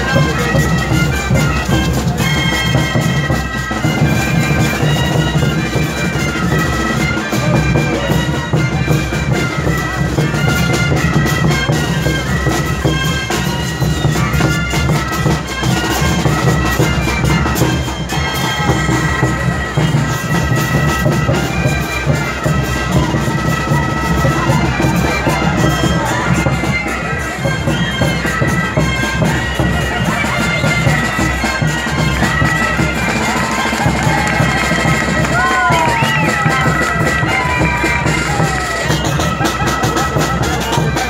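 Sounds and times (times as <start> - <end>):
snare drums: 0.0 - 41.0
wooden flutes playing in unison: 0.0 - 41.0.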